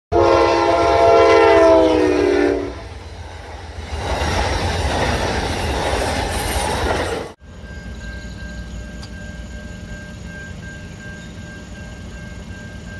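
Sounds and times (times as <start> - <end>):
locomotive air horn: 0.1 - 2.9
train wheels on rails: 1.2 - 12.9.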